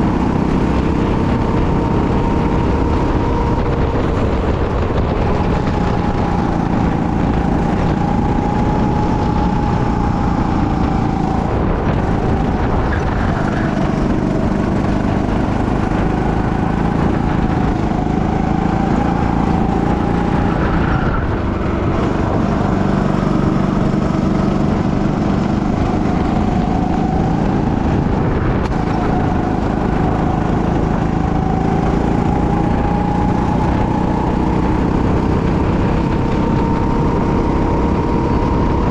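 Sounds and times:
go-kart engine running: 0:00.0 - 0:38.9
steady rushing noise: 0:00.0 - 0:38.9.

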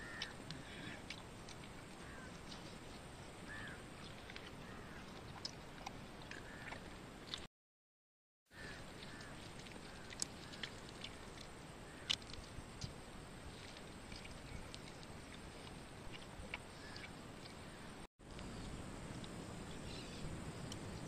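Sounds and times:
man chewing and crunching bones: 0:00.0 - 0:03.0, 0:04.0 - 0:07.5, 0:09.0 - 0:17.6.

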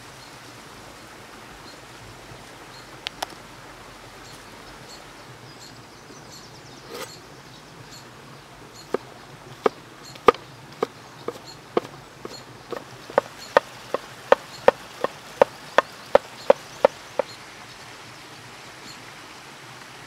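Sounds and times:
faint birdsong: 0:00.0 - 0:19.4
knife chopping on wooden board: 0:09.6 - 0:15.1.

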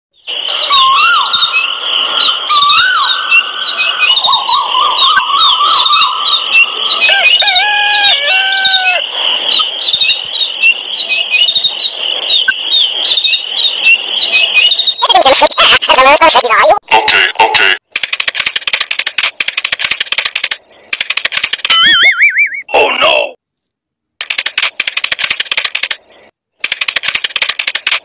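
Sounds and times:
songbirds chirping: 0:00.1 - 0:15.6
whistled bird calls: 0:00.2 - 0:15.1
dense chattering sound: 0:04.1 - 0:23.2.

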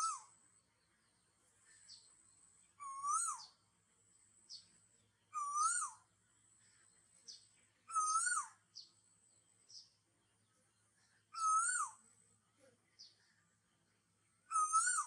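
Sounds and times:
bird whistled call: 0:00.0 - 0:00.4, 0:02.8 - 0:03.6, 0:05.3 - 0:06.1, 0:07.9 - 0:08.6, 0:11.4 - 0:12.0, 0:14.5 - 0:15.0
high bird chirps: 0:02.8 - 0:03.6, 0:05.3 - 0:06.0, 0:07.3 - 0:09.0, 0:11.3 - 0:12.0, 0:14.4 - 0:15.0.

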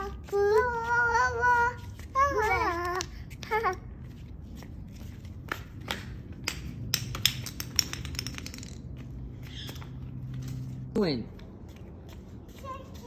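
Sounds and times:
child vocal sound: 0:00.0 - 0:03.9
children tapping on tile floor: 0:00.0 - 0:10.5, 0:11.2 - 0:13.0.

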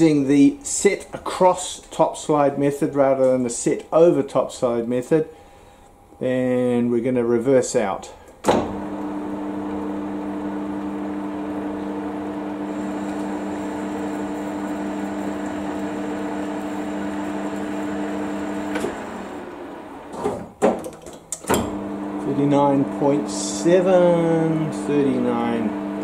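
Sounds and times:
sharp clunks: 0:08.4 - 0:08.8
metal lathe humming: 0:08.7 - 0:20.1.

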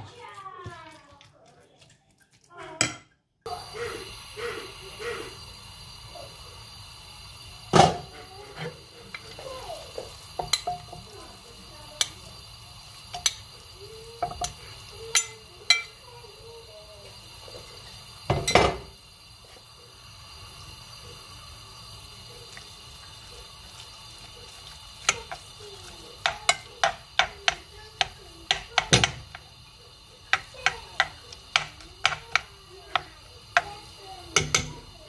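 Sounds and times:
metal spoon clinking in saucepan: 0:10.4 - 0:11.0, 0:13.1 - 0:13.5, 0:14.2 - 0:16.0, 0:26.2 - 0:29.4, 0:30.3 - 0:33.8, 0:34.4 - 0:34.8.

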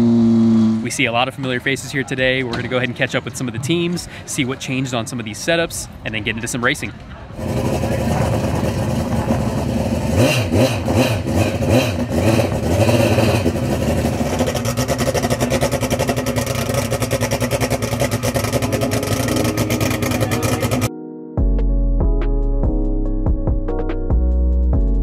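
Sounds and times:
engine revving: 0:07.4 - 0:18.8
electronic music: 0:18.6 - 0:24.8.

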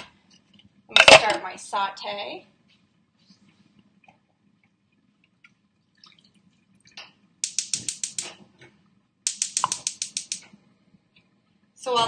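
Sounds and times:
gas igniter clicking rapidly: 0:07.4 - 0:08.4, 0:09.3 - 0:10.4.

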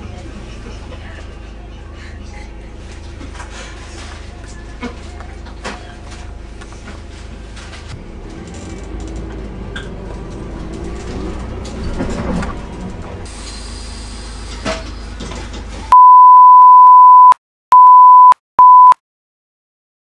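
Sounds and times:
bus engine rumble with rattles: 0:00.0 - 0:16.0
test-tone beep: 0:16.0 - 0:19.0.

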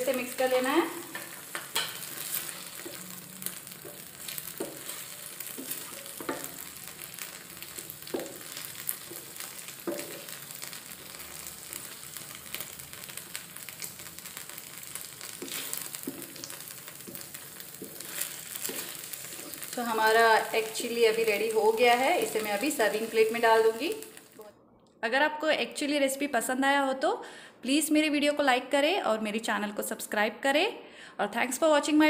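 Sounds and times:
sauce sizzling in frying pan: 0:00.0 - 0:24.4
spatula knocking and scraping pan: 0:01.0 - 0:03.1, 0:03.8 - 0:06.8, 0:08.0 - 0:10.4.

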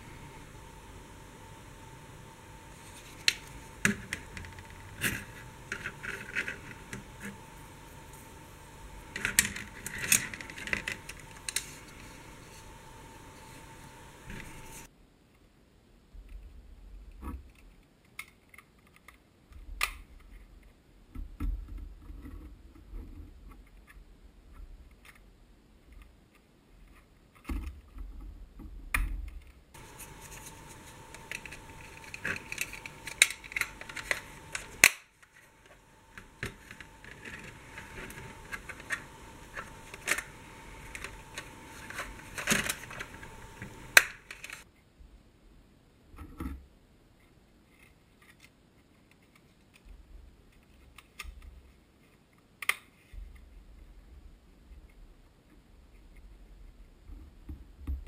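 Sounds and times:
faint steady tone: 0:00.0 - 0:14.9
plastic clicks and snaps: 0:29.0 - 0:44.6.

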